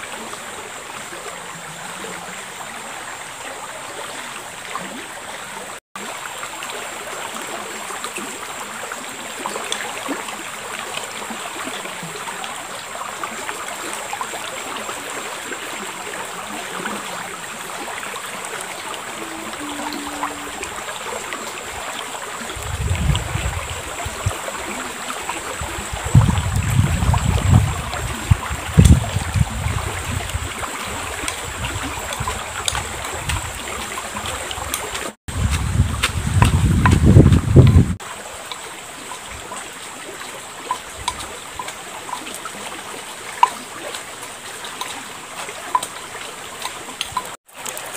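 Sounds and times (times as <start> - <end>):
river flowing: 0.0 - 47.9
wind rumbling on microphone: 18.8 - 38.0.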